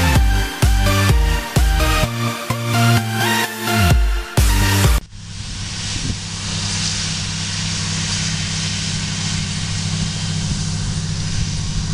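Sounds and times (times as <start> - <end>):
constant hiss: 5.0 - 11.9.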